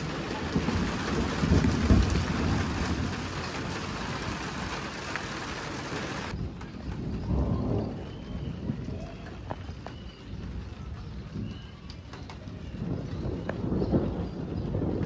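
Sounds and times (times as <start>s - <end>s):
low rumbles: 0.0s - 9.0s
rain hissing on a rooftop: 0.0s - 11.6s, 12.2s - 15.0s.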